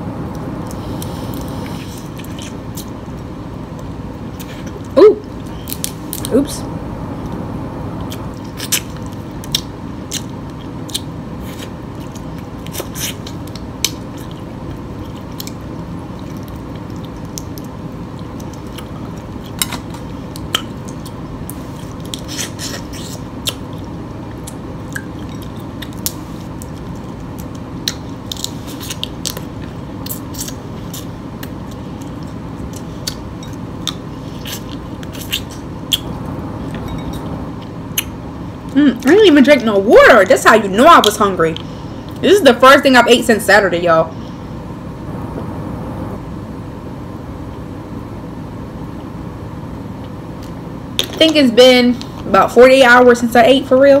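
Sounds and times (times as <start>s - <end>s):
steady low hum: 0.0s - 54.0s
person chewing: 0.3s - 6.3s, 8.0s - 38.8s.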